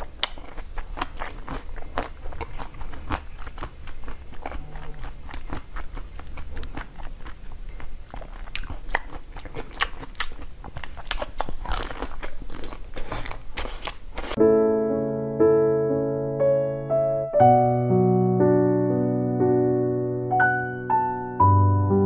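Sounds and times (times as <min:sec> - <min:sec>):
crunching frozen ice cream bar: 0:00.0 - 0:14.4.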